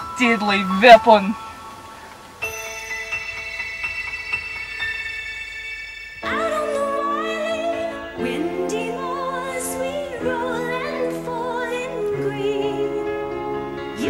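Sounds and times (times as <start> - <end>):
sustained backing chords: 0.0 - 14.0
woman singing operatically: 6.2 - 13.3.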